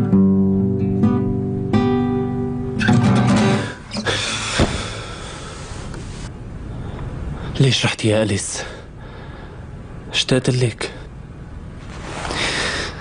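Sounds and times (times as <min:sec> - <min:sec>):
acoustic guitar chords picked: 0:00.0 - 0:04.5
guitar thump on bed: 0:04.5 - 0:05.0
rustling: 0:11.8 - 0:12.8.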